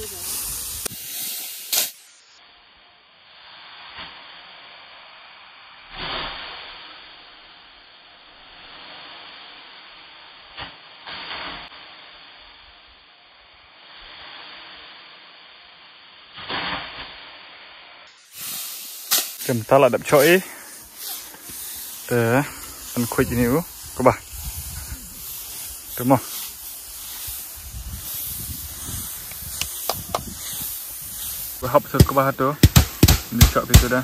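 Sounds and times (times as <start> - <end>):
sticks striking straw: 1.2 - 2.1, 18.3 - 24.2, 25.2 - 34.0
straw rustling: 18.2 - 34.0.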